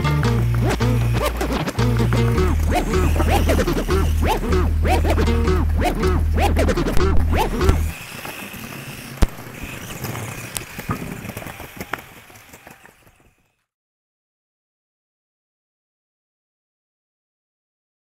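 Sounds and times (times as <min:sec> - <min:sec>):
music with heavy bass beat: 0:00.0 - 0:07.9
electric motor whine: 0:00.0 - 0:13.5
tyre noise on paving: 0:00.0 - 0:13.7.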